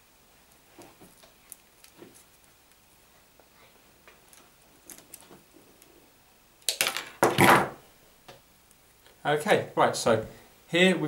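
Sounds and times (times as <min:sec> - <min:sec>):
faint plastic rustling: 0:00.5 - 0:06.0.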